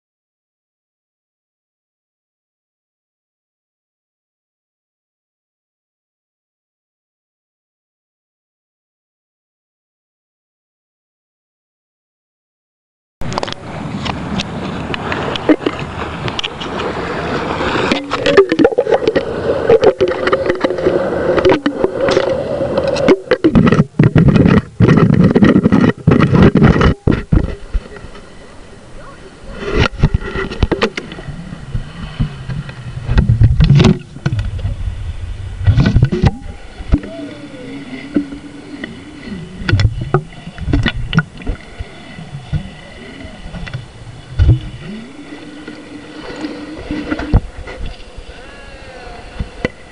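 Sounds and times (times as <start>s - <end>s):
low hum with wavering pitch: 13.2s - 49.9s
steady droning tone: 13.2s - 49.9s
muffled water sloshing: 13.3s - 28.9s, 29.5s - 49.9s
water splashes: 13.3s - 49.9s.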